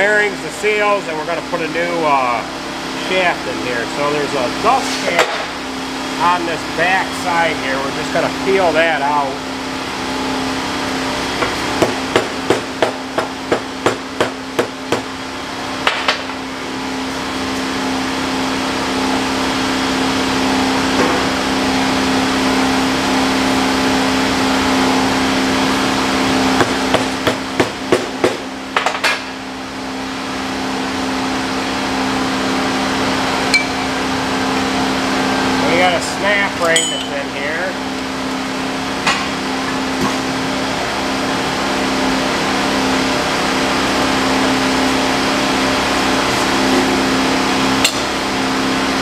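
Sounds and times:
steady hum: 0.0s - 49.0s
hammer striking metal: 33.5s - 33.9s, 36.6s - 37.2s.

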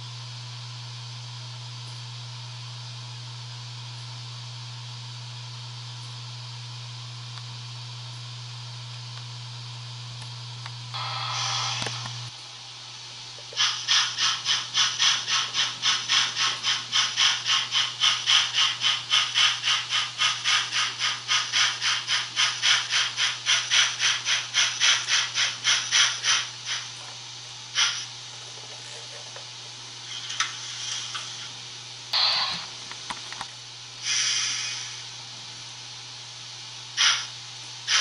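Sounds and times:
steam hiss: 11.0s - 12.0s, 13.5s - 26.9s, 27.7s - 28.1s, 30.0s - 31.5s, 34.0s - 35.2s, 37.0s - 38.0s
locomotive chuffing: 13.5s - 26.9s, 27.8s - 28.1s.

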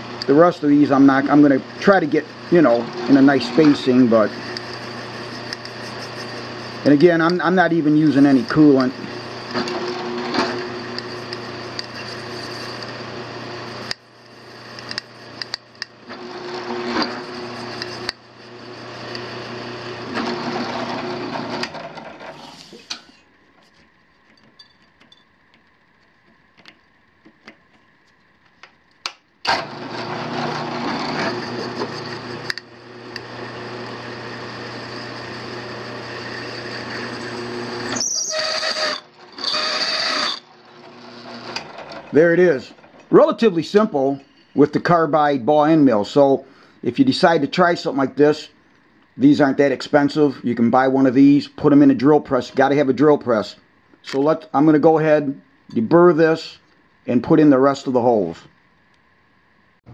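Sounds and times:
end mill cutting steel: 0.0s - 23.2s, 29.4s - 44.8s
drill press motor hum: 0.0s - 27.9s, 29.4s - 44.9s
high-pitched squeal: 2.5s - 7.0s, 36.0s - 40.4s.

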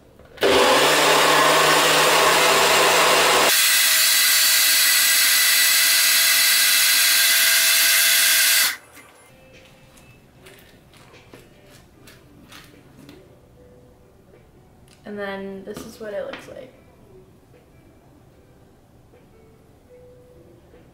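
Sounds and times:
blender running: 0.4s - 8.8s.

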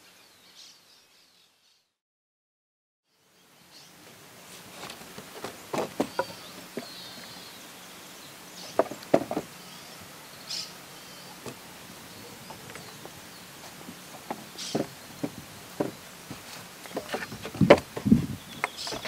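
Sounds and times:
birds chirping: 3.1s - 19.0s
wooden gate rails knocking: 8.7s - 9.5s, 14.1s - 16.0s, 16.9s - 19.0s.

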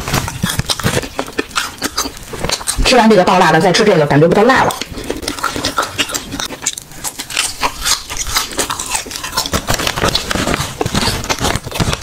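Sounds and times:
person chewing: 0.0s - 2.9s, 4.6s - 12.0s
wet mouth clicks: 4.7s - 10.4s.

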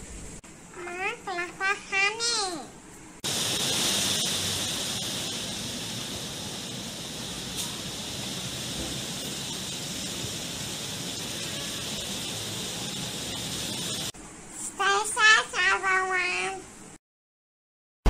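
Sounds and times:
wind and rain through trees: 3.2s - 14.1s.

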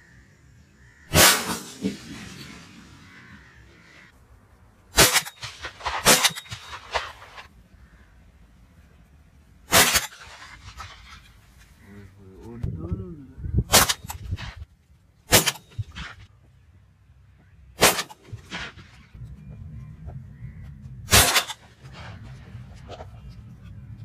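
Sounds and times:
short sharp bangs: 1.1s - 2.7s.

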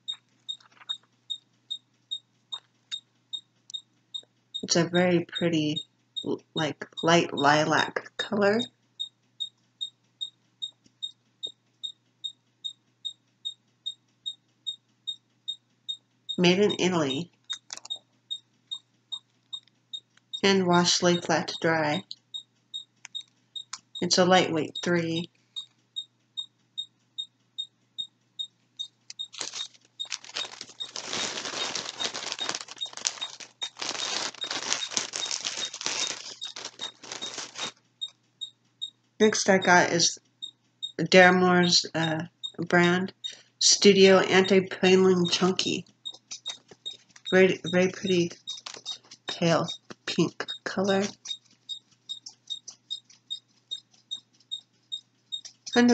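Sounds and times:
plastic packaging crinkling: 0.1s - 1.1s, 29.1s - 37.8s, 46.2s - 47.4s, 48.1s - 50.1s.

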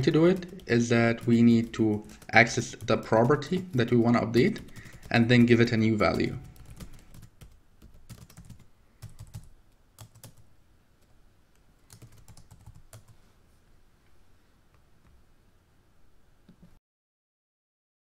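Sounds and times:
typing on computer keyboard: 0.0s - 10.5s, 11.9s - 13.1s.

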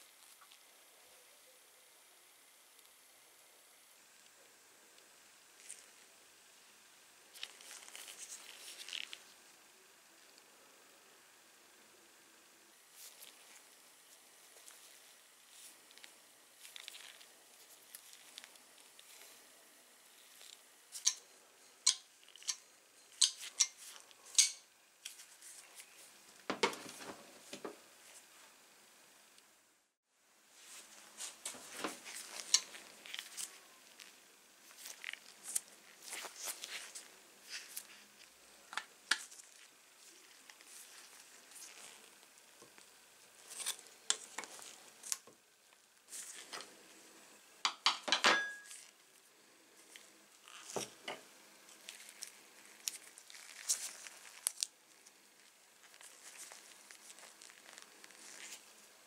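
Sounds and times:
metal tools clinking and tapping: 23.2s - 24.6s, 47.7s - 48.8s.

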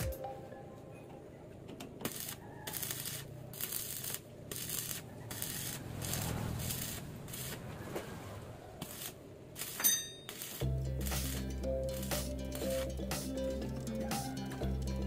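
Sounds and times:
welding arc crackling and sizzling: 2.0s - 7.7s, 8.8s - 14.0s.

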